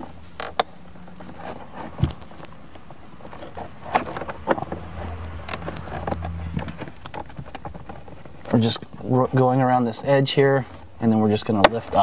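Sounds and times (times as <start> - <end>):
low steady hum: 0.0 - 8.6
plastic tool scraping and prying: 3.2 - 8.6.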